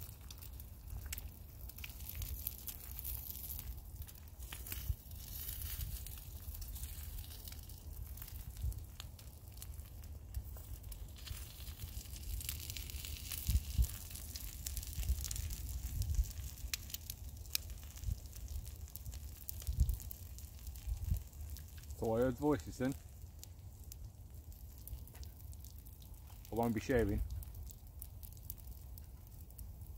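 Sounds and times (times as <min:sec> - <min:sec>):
egg sizzling in pan: 0:00.7 - 0:22.1.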